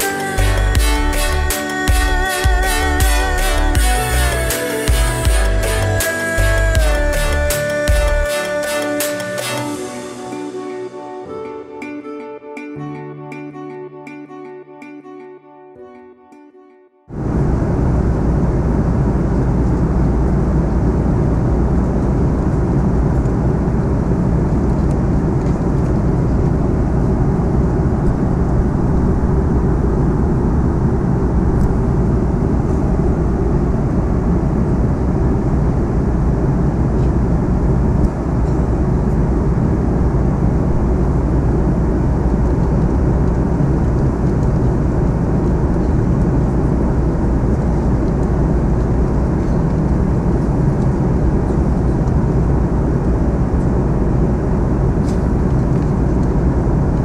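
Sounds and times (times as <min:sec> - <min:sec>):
airplane cabin engine rumble: 0:17.1 - 0:57.0.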